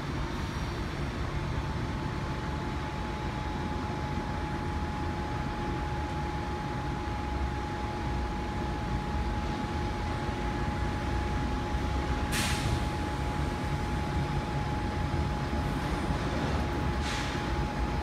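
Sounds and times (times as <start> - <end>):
tram humming and rumbling: 0.0 - 18.0
short hiss: 12.3 - 12.8, 17.0 - 17.4.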